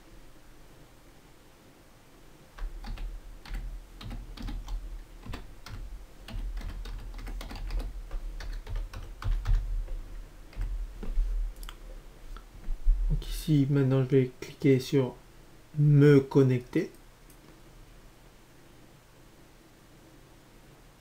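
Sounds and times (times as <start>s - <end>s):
computer keyboard typing: 2.6s - 11.7s.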